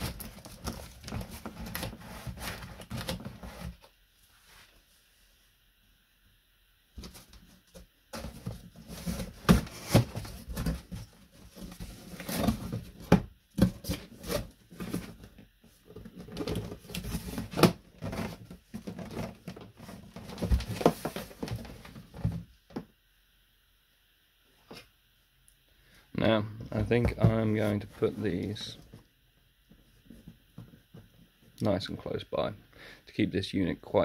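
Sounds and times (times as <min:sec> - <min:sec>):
cardboard box rustling and scraping: 0:00.0 - 0:04.8, 0:08.1 - 0:22.5.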